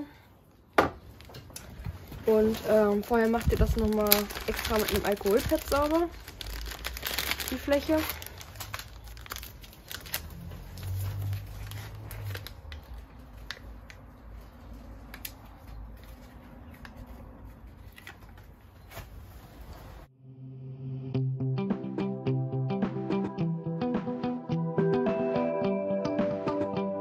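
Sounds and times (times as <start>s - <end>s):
music: 20.2s - 27.0s.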